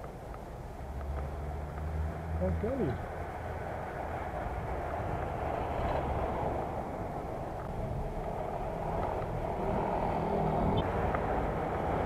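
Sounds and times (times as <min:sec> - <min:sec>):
wind and rolling noise: 0:00.0 - 0:12.0.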